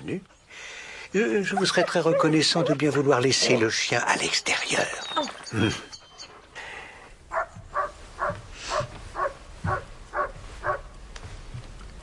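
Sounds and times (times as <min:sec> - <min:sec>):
dog barking: 0:07.3 - 0:10.9.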